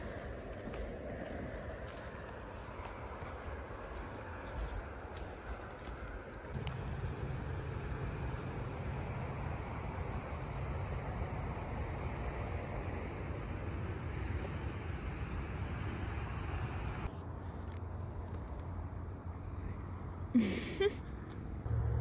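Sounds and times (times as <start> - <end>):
footsteps crunching on gravel: 0.0 - 6.6
steady low rumble with hiss: 0.0 - 21.9.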